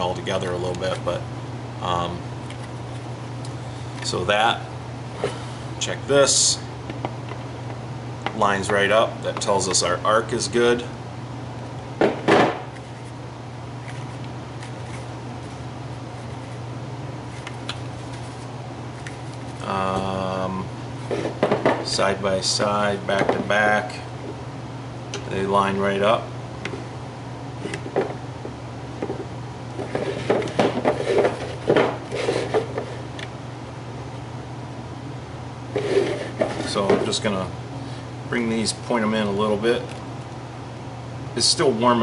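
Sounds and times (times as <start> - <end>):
steady low hum: 0.0 - 42.0
plastic helmets knocking and scraping: 29.0 - 33.0.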